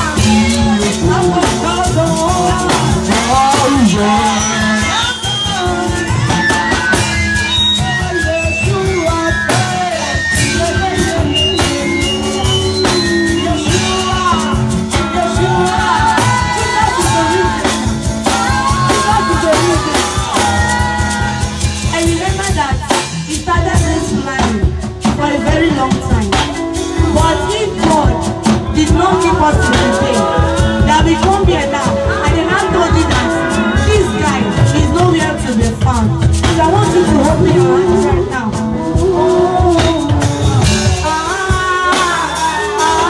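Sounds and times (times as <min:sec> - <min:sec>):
backing singer: 0:00.0 - 0:43.0
drum kit: 0:00.0 - 0:43.0
hand percussion: 0:00.0 - 0:43.0
keyboard: 0:00.0 - 0:43.0
woman singing into microphone: 0:00.0 - 0:43.0.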